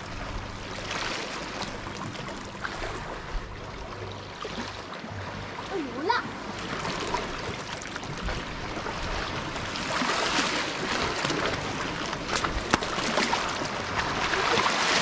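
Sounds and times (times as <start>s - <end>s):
waves washing on rocky shore: 8.8s - 15.0s.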